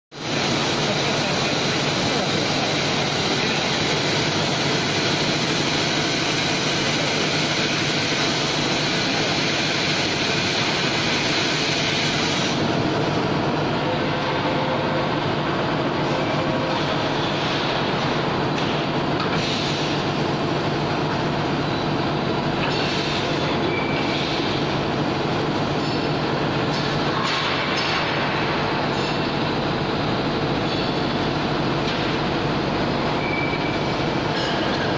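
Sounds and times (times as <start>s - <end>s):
cnc machine running: 0.2s - 27.4s.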